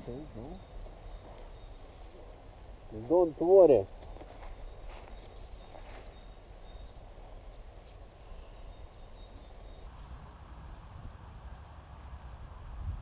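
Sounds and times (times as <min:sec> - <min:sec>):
faint birds chirping: 0:00.0 - 0:13.0
low wind rumble: 0:06.3 - 0:13.0.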